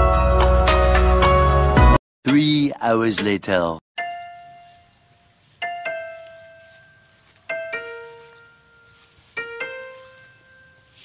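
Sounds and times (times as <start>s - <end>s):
slow piano notes: 4.0s - 11.0s.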